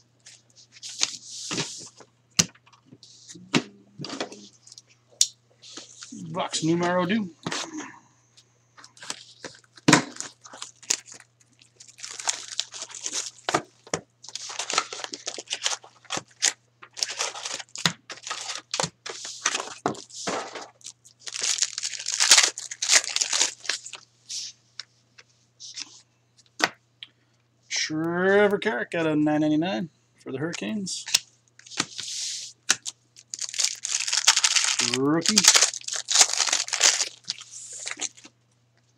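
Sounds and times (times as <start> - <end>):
cards rustling and clicking: 8.9 - 24.0, 31.0 - 38.3
wrappers tearing and crinkling: 8.9 - 24.0, 31.1 - 38.3.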